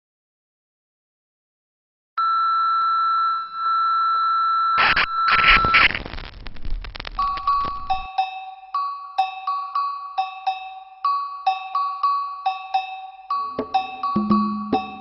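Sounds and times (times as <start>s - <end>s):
static noise bursts with crackles: 4.8s - 8.1s
bell-like music notes: 7.2s - 15.0s.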